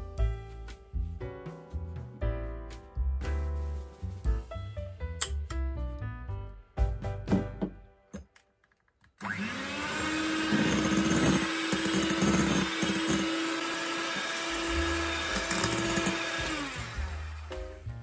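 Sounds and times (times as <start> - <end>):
electric hand mixer running: 9.2 - 18.0.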